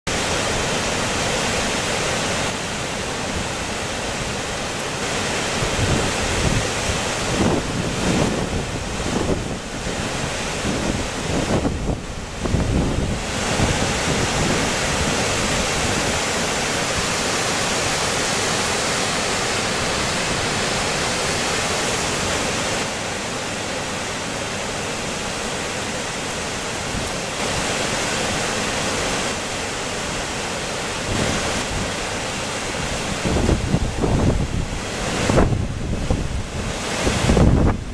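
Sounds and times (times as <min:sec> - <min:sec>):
waterfall rushing: 0:00.1 - 0:37.9
wind buffeting microphone: 0:05.5 - 0:18.1, 0:32.8 - 0:37.9.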